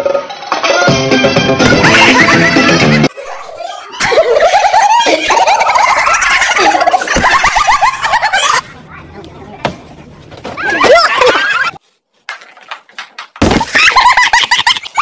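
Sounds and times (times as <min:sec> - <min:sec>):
children giggling: 0:01.6 - 0:08.9, 0:10.4 - 0:11.8, 0:13.5 - 0:15.0.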